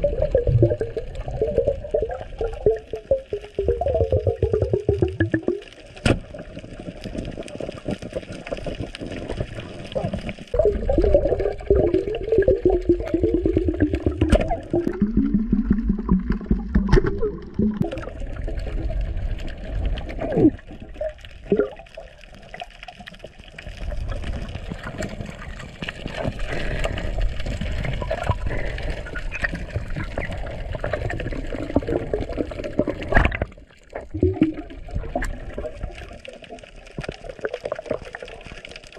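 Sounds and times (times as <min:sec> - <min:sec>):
bubbly wavering tones: 0:00.0 - 0:05.8, 0:10.5 - 0:22.2, 0:27.9 - 0:36.4
water rushing and gurgling underwater: 0:00.0 - 0:38.9.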